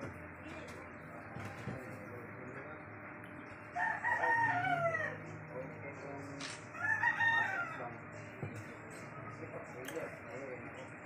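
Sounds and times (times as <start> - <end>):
rooster crowing: 3.8 - 5.3, 6.7 - 8.0.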